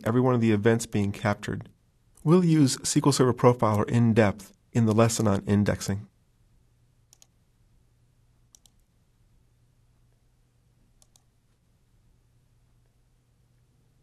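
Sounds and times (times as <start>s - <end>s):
computer mouse clicks: 7.1s - 7.4s, 8.5s - 8.9s, 11.0s - 11.3s.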